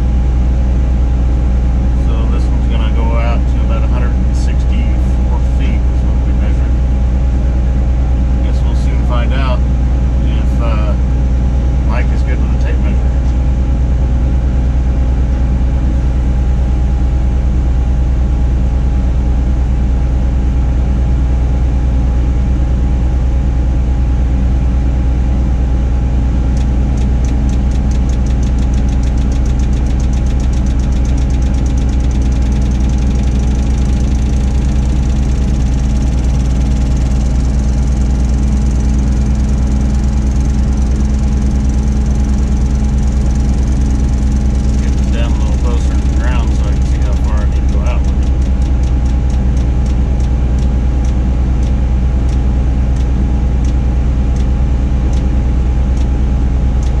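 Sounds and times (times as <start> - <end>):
crane engine droning: 0.0 - 57.0
rapid high-pitched ticking: 26.4 - 55.3, 55.9 - 57.0.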